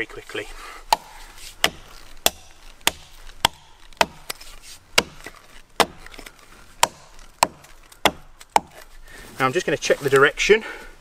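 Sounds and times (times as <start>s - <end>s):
axe chopping into tree trunk: 0.9s - 9.0s.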